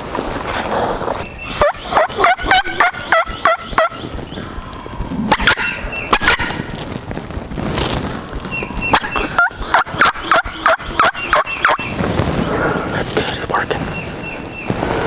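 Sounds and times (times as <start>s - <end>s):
wild turkey yelping: 1.4s - 6.7s, 8.8s - 11.9s.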